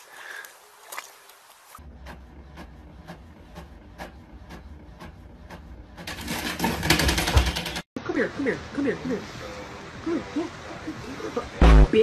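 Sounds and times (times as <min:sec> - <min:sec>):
printer rattle: 0:02.6 - 0:07.8.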